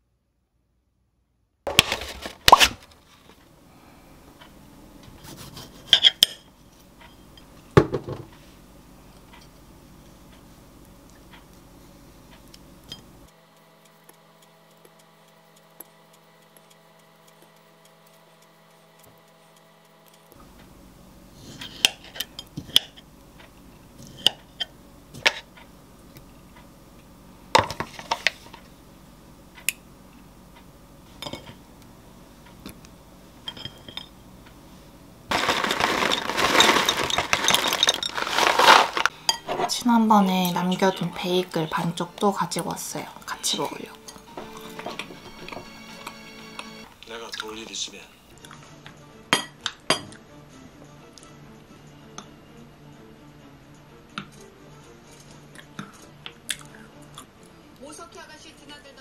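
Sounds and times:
pieces poured into glass mug: 35.3 - 39.1.

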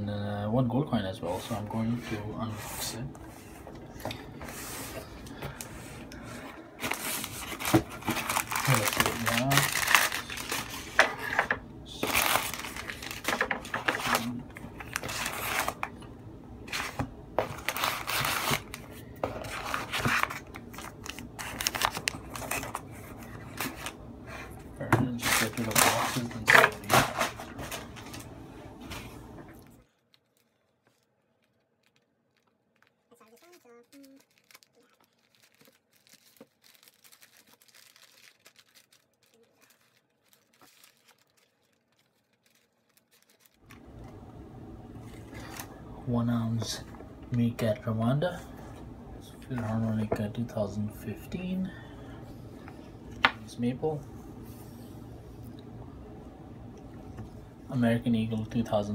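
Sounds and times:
packing paper rustling: 1.4 - 16.0, 16.6 - 43.8.

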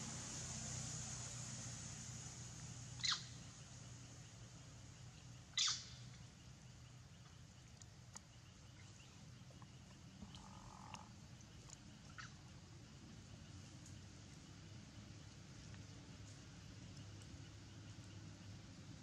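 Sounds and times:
faint ticks: 7.2 - 12.4, 13.6 - 14.0, 15.6 - 18.3.

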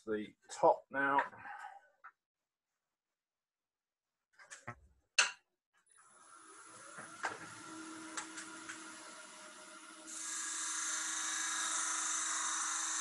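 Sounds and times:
wood lathe humming: 6.0 - 13.0
turning tool scraping wood: 10.1 - 13.0.

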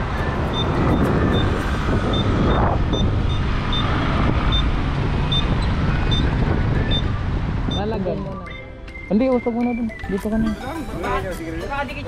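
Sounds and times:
wind rush on microphone: 0.0 - 8.5
scooter road noise: 0.0 - 8.7.

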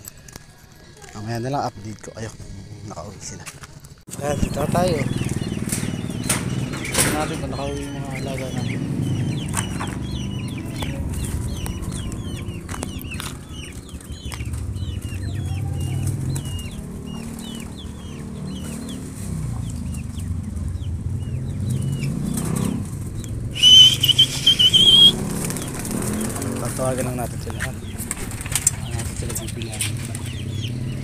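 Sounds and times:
chickens clucking: 0.0 - 31.0
chicks peeping: 0.0 - 31.0
high warbling whistle: 23.6 - 25.2.

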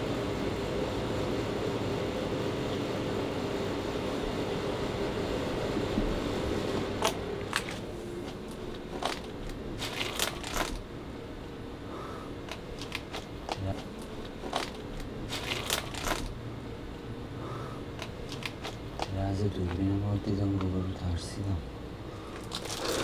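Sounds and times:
steady low hum: 0.0 - 23.0
dry wood crackling and snapping: 7.0 - 10.9, 12.4 - 16.4, 17.9 - 19.9, 22.3 - 23.0.

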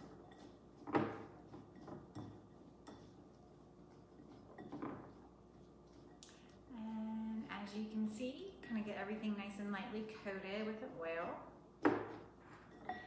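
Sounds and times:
utensil clinking on glass bowl: 0.0 - 6.7, 11.9 - 13.0.

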